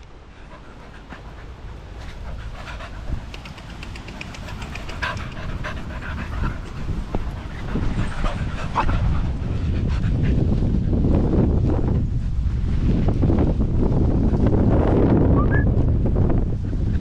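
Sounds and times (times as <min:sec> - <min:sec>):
small dogs panting: 0:00.2 - 0:11.1.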